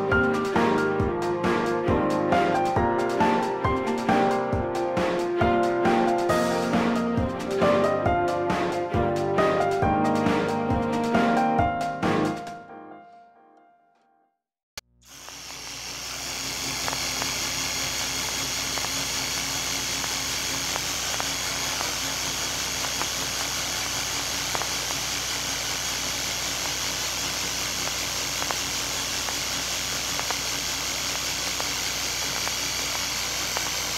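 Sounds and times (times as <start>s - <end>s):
film projector whirring: 15.0s - 33.9s.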